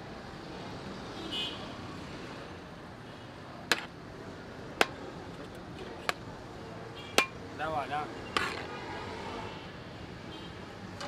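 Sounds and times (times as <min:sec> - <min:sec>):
street background noise: 0:00.0 - 0:11.0
metal ladle clanking on pot: 0:07.2 - 0:07.4.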